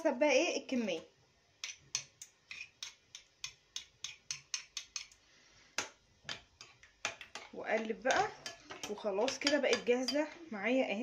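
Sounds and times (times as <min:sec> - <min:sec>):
spoon scraping garlic press: 0:01.6 - 0:05.2.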